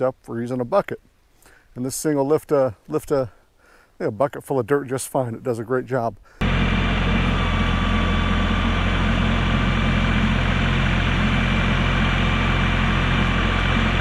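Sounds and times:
tractor diesel engine running: 6.4 - 14.0.

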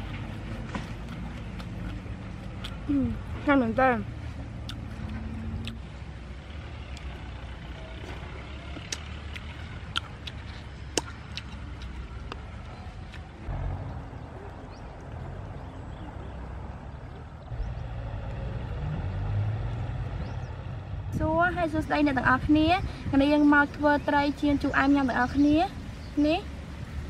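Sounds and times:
steady low rumble: 0.0 - 18.8
sharp clicks and ticks: 8.7 - 15.2.

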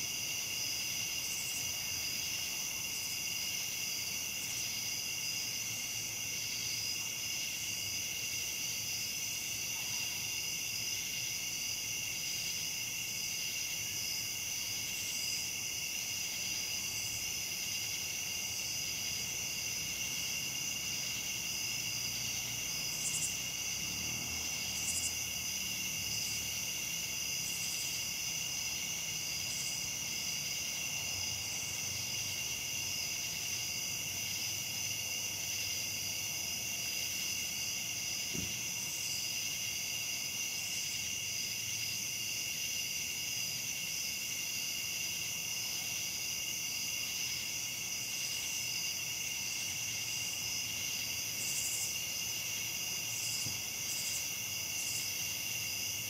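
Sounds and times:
crickets and katydids trilling: 0.0 - 56.0
short high insect calls: 22.2 - 25.4, 51.0 - 52.5, 53.1 - 55.8.

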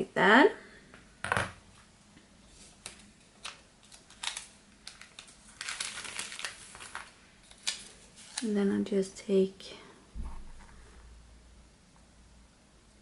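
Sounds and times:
paper rustling: 2.5 - 8.6.

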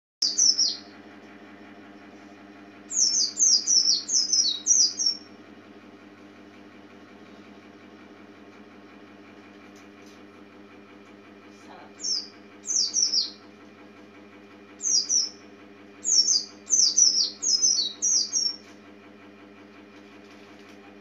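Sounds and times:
bird singing high falling notes: 0.2 - 0.9, 2.9 - 5.3, 12.0 - 13.5, 14.8 - 15.4, 16.0 - 18.6
steady low hum: 0.2 - 21.0.

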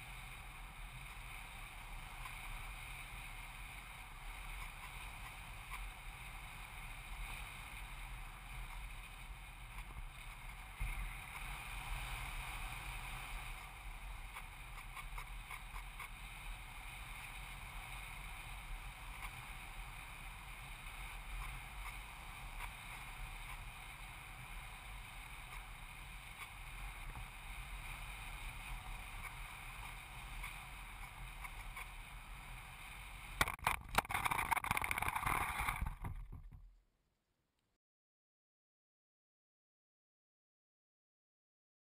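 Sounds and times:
plane scraping on dirt: 33.4 - 36.4.

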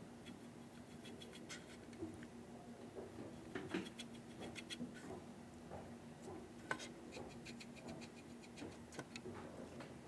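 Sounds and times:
paintbrush scratching and tapping: 3.2 - 5.2, 6.2 - 9.3.

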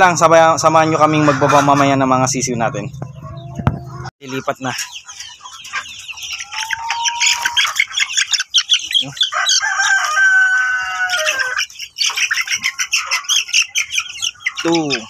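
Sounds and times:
chicks peeping and cheeping: 0.0 - 15.0
drawn-out chick call: 0.8 - 2.2, 2.9 - 15.0.

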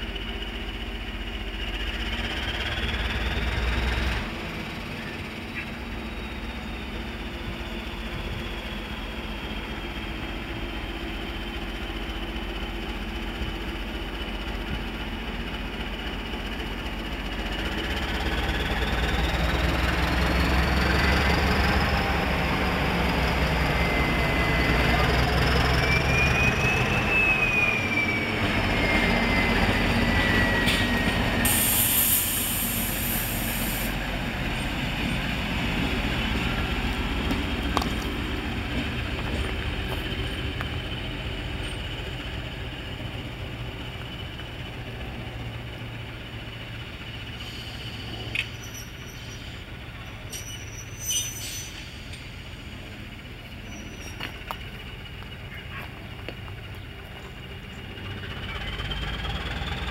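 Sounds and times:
diesel locomotive engine: 0.0 - 59.9
brief high hiss: 30.7 - 34.0, 50.3 - 52.2.

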